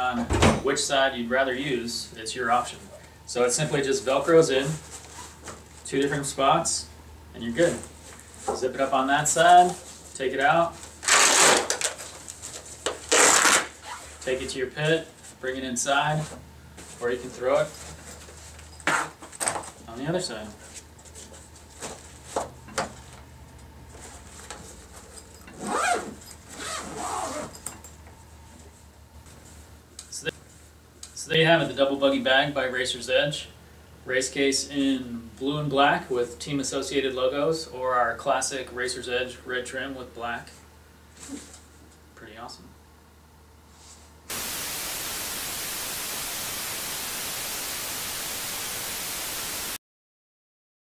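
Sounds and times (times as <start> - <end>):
zipper being pulled closed: 11.0 - 11.9, 13.1 - 14.2, 25.5 - 27.6
television static hiss: 13.1 - 15.1, 44.3 - 49.8.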